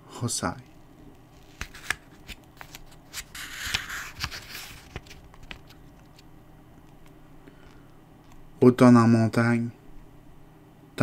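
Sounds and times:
book pages rustling: 1.2 - 6.3.

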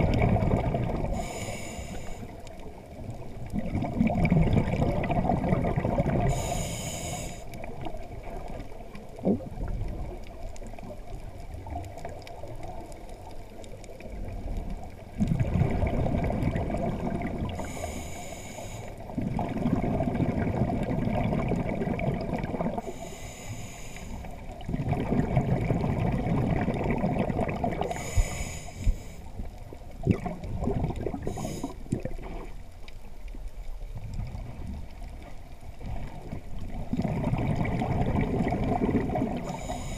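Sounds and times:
rumbling exhaled bubbles: 0.0 - 1.4, 2.6 - 6.5, 7.6 - 17.8, 19.0 - 23.0, 24.4 - 28.4, 29.4 - 39.8
regulator breathing hiss: 1.1 - 2.4, 6.3 - 7.6, 17.5 - 19.1, 22.8 - 24.4, 27.9 - 29.3, 31.2 - 31.8, 39.4 - 39.9.

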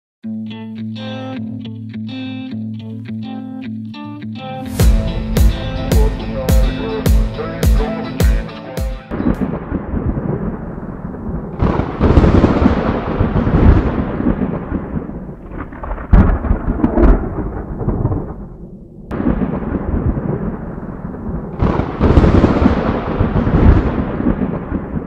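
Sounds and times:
thunder rumbling: 4.7 - 8.0, 9.2 - 25.0
thunder claps: 4.8 - 8.0, 9.2 - 25.0.

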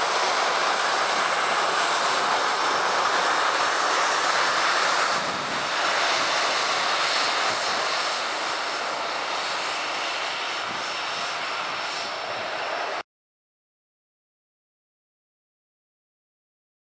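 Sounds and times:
jet engines at taxi thrust: 0.0 - 13.1.

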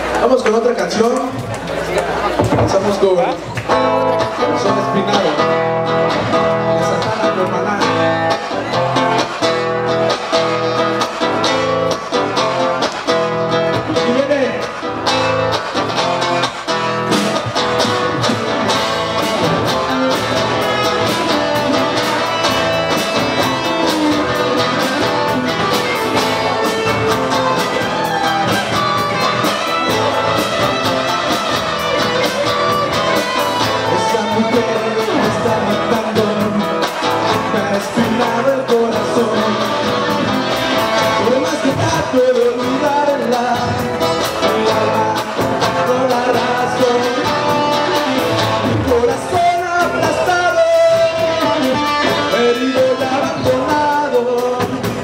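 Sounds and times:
live rock band playing: 0.0 - 55.0
man singing: 4.2 - 9.5, 18.2 - 55.0.

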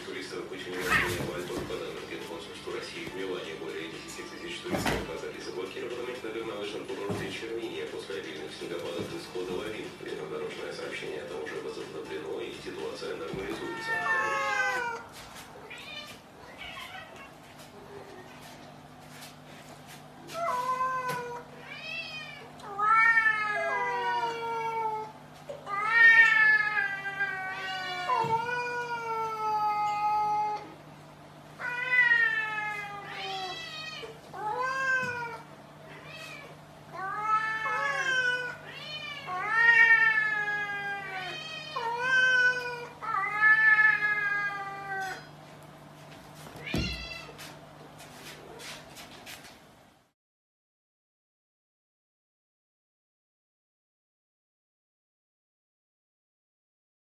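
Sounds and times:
cat yowling: 13.6 - 17.4, 20.4 - 25.1, 25.7 - 30.7, 31.6 - 45.3.

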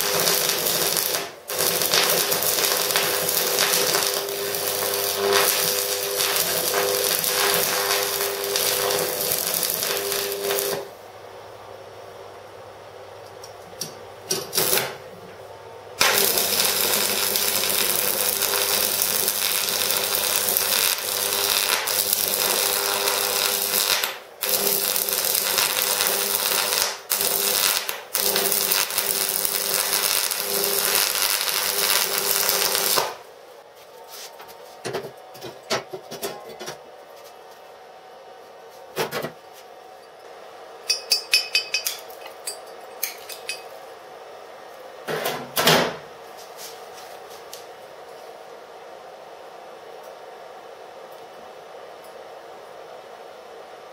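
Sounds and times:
welding arc crackling: 0.0 - 11.0, 14.3 - 15.0, 16.0 - 33.3.

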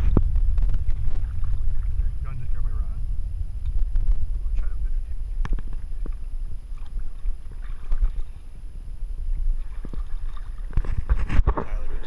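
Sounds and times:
microphone handling noise: 0.0 - 12.0
wind rumbling on microphone: 0.0 - 12.0.

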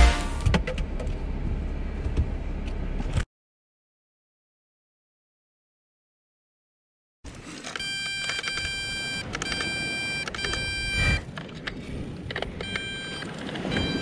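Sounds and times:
electronic beeps: 7.7 - 11.2, 12.6 - 14.0.

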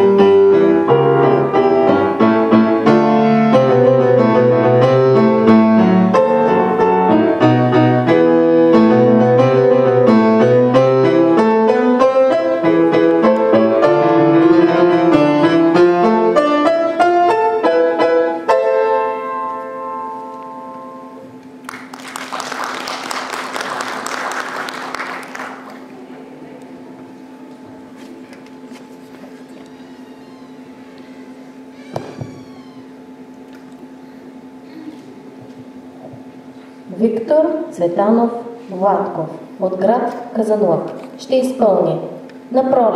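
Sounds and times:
classical piano piece: 0.0 - 21.4
audience applauding: 21.6 - 26.1.

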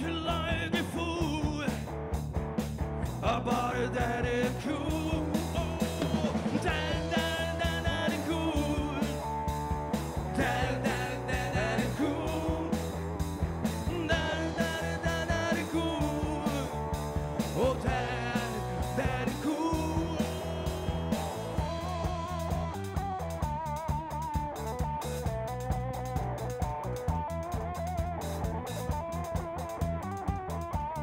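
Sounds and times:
man singing: 0.0 - 1.9, 3.1 - 9.4, 10.3 - 13.0, 13.8 - 22.4
drum kit: 0.0 - 31.0
electric bass: 0.0 - 31.0
electric guitar: 0.0 - 31.0.

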